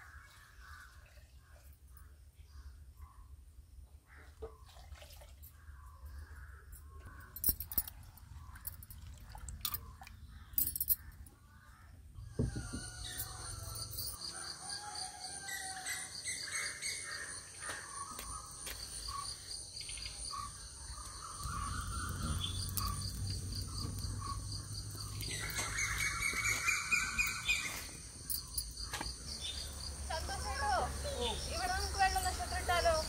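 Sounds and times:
birds chirping: 14.8 - 33.0
insects chorus pulsing: 18.1 - 33.0.

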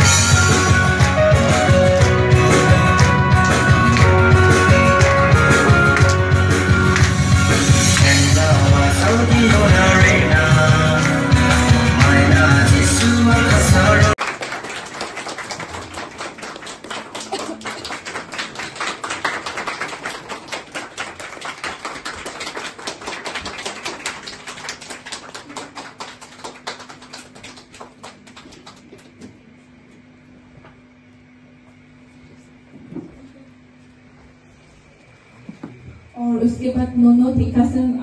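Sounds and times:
music: 0.0 - 14.2
audience applause: 0.0 - 29.3.

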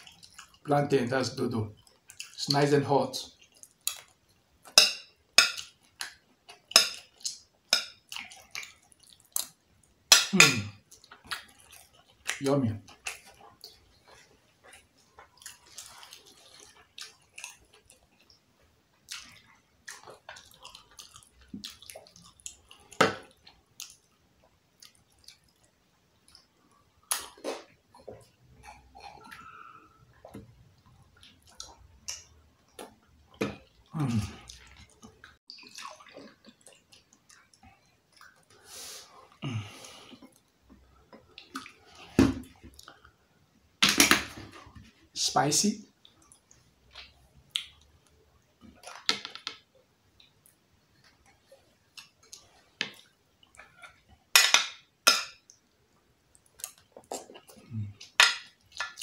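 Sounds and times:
wet chewing: 0.0 - 0.6, 1.8 - 2.4, 5.4 - 43.2
mouth clicks and smacks: 24.7 - 30.6, 45.9 - 47.9, 56.3 - 59.0.

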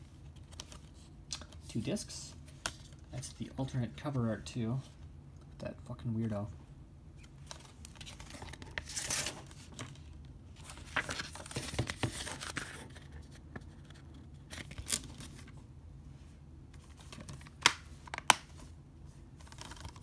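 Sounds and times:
paper insert rustling and sliding: 7.4 - 15.6.

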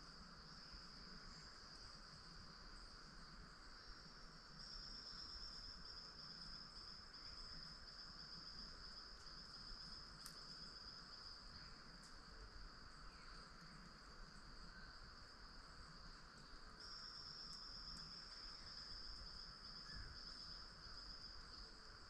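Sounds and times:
insect drone: 0.0 - 22.0
soft even hiss: 0.0 - 22.0
tiny ticks: 9.1 - 9.4, 10.0 - 10.8, 12.0 - 12.2, 17.4 - 18.1.

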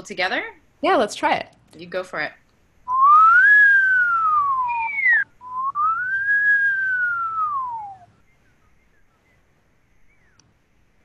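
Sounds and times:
person whistling: 2.9 - 8.1.

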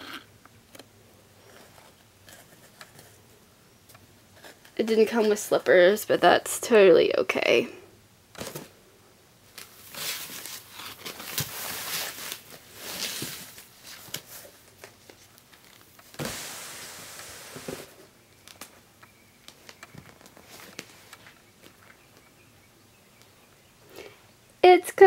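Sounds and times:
packing paper rustling: 9.5 - 17.9.

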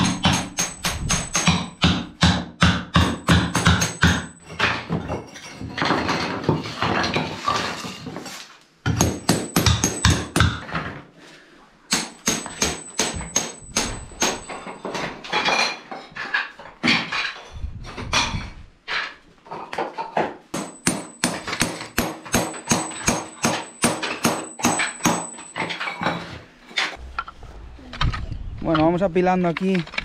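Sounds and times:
hammer knocking ceramic tiles: 0.0 - 7.8, 8.8 - 11.0, 11.9 - 17.4, 19.6 - 26.4.

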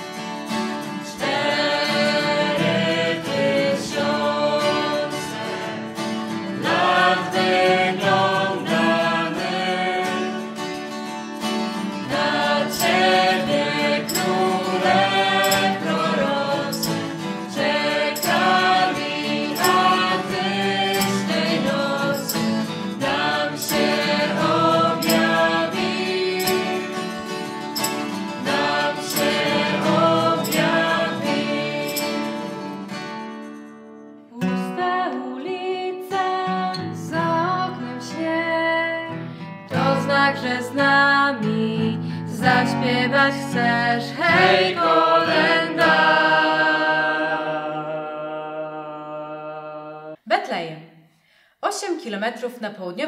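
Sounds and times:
strummed acoustic guitar: 0.0 - 35.1, 36.4 - 40.8, 41.4 - 47.7
group singing a carol: 0.8 - 33.0, 39.7 - 50.2
maracas shaking: 12.0 - 33.6.

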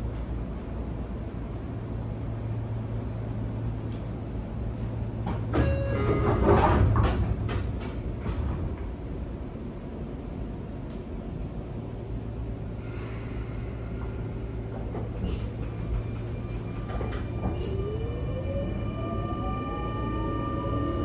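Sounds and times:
train low hum: 0.0 - 21.0.

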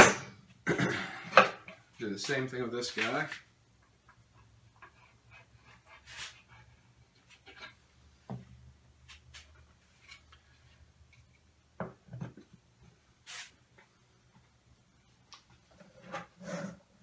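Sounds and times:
short rubbing hiss: 13.2 - 13.6.

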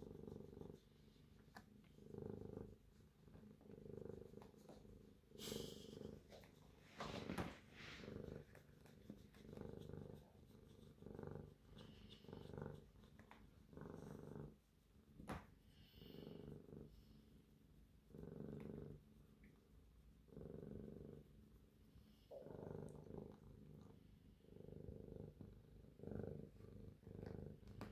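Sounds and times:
fingers rustling through fur: 0.0 - 20.3
cat purring: 0.0 - 27.9.

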